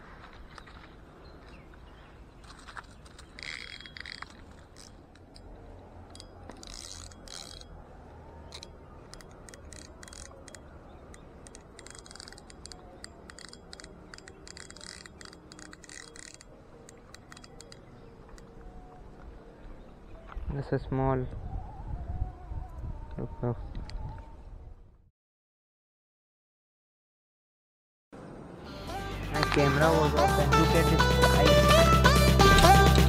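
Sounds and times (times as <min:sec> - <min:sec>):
handling rustling: 0:00.0 - 0:19.5
fishing reel ticking clicks: 0:03.4 - 0:05.4, 0:06.1 - 0:07.7, 0:08.5 - 0:18.4.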